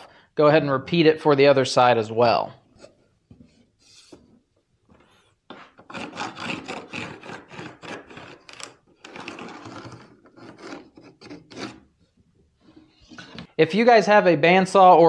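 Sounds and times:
pencil scratching on wood: 5.5s - 12.0s.

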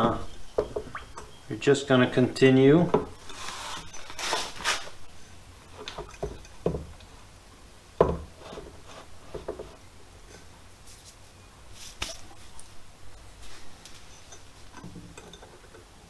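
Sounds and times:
pipes scraping on plastic tub: 3.1s - 5.0s, 8.3s - 9.8s.

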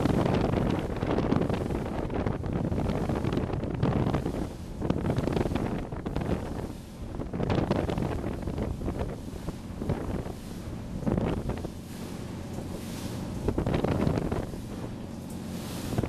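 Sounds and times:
water rushing and spray: 0.0s - 16.0s
wind buffeting microphone: 0.0s - 16.0s.

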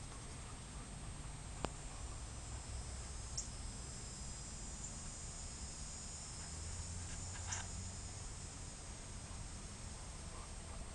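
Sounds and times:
faint high-pitched hum: 0.0s - 10.9s.

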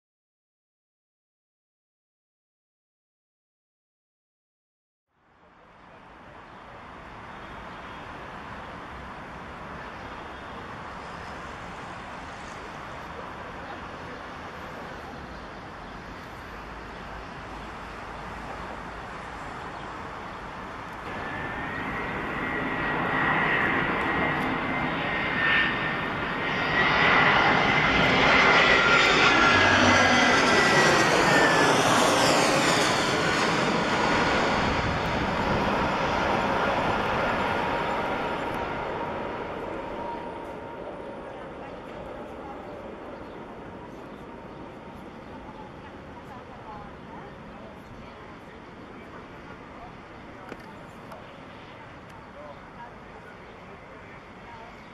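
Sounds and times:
jet airliner approaching: 5.5s - 54.9s
jet engine whine: 5.5s - 54.9s.

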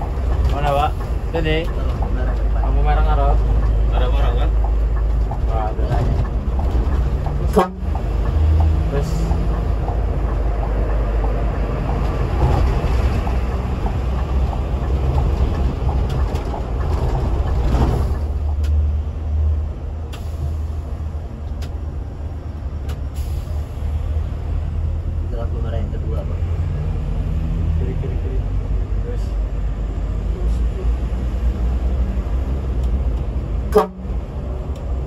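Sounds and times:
coach engine drone: 0.0s - 35.0s
road and tyre noise: 0.0s - 35.0s.

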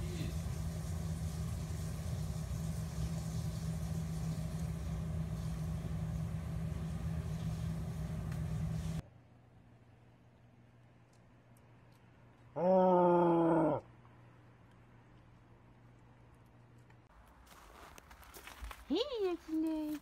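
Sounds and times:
mechanical hum: 0.0s - 12.7s.

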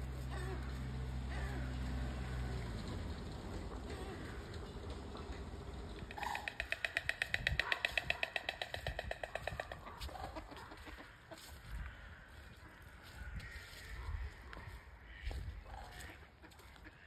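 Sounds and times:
stork clattering its bill: 5.9s - 11.0s.

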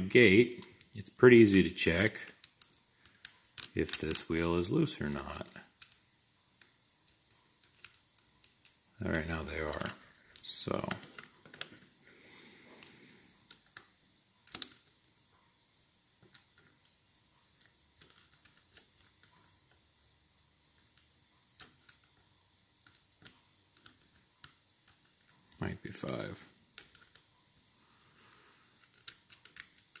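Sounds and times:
padlock metallic clicks: 28.8s - 30.0s.

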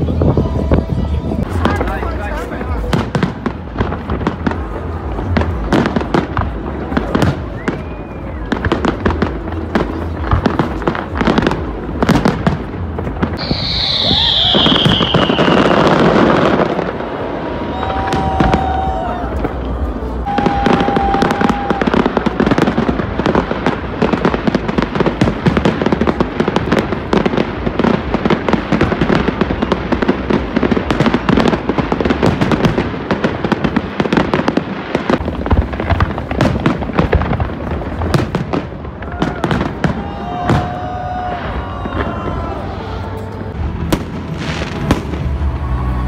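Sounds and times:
fireworks bursting: 0.0s - 46.0s
fireworks crackling: 0.0s - 46.0s
short steady whistle: 13.4s - 15.5s.

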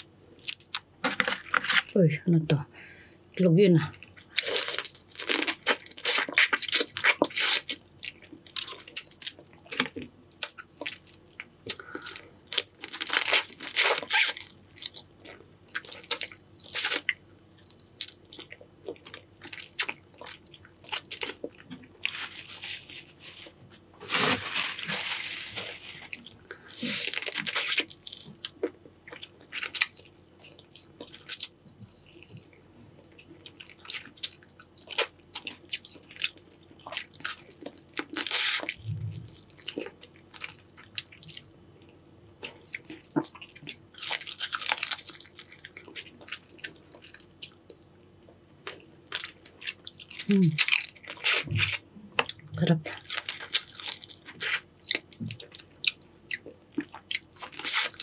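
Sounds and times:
crunching and chewing: 0.0s - 1.9s, 3.9s - 58.0s.

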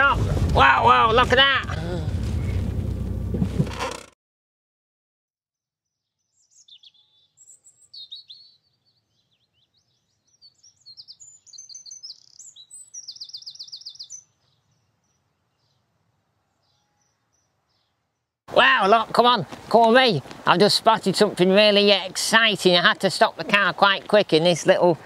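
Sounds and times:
faint low rumble: 0.0s - 3.7s
songbird chirping: 5.9s - 25.0s.

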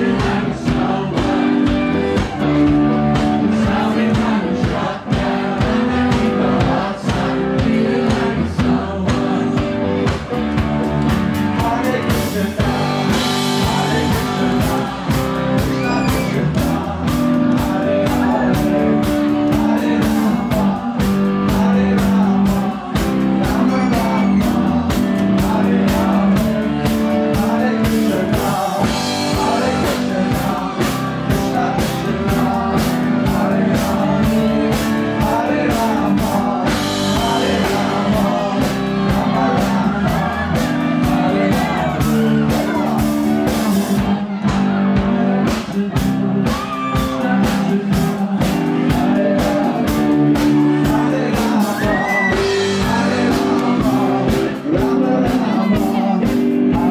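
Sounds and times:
guitar: 0.0s - 56.9s
live rock band playing: 0.0s - 56.9s
person singing: 0.0s - 56.9s
steady drumbeat: 0.0s - 56.9s.

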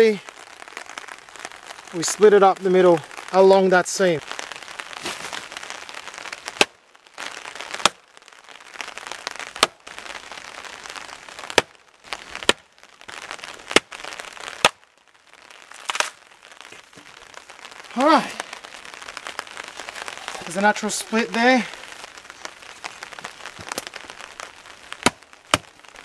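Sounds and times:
hatchet chopping log: 25.0s - 25.7s.

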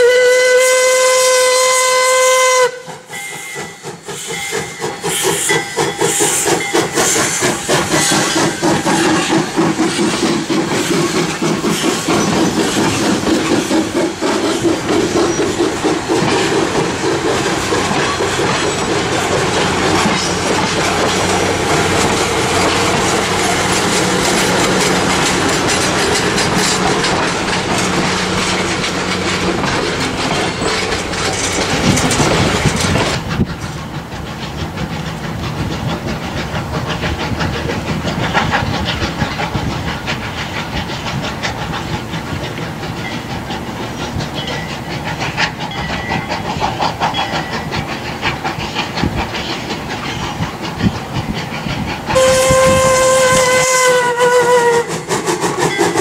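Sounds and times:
steam locomotive whistle: 0.0s - 9.3s, 52.1s - 55.1s
train wheels clicking over rail joints: 0.8s - 56.0s.

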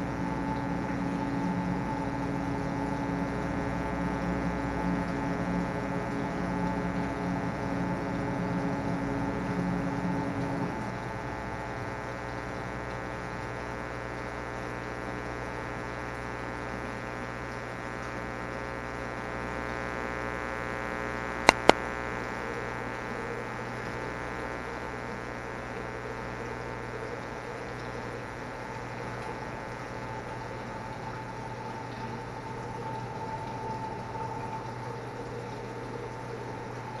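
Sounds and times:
electrical hum: 0.0s - 37.0s
sharp clicks: 21.4s - 21.8s.

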